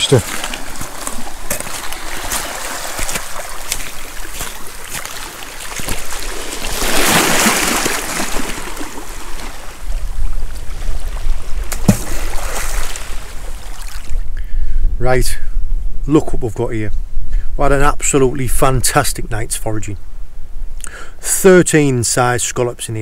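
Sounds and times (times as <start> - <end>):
water lapping among rocks: 0.0 - 14.1
rush of water: 0.0 - 14.2.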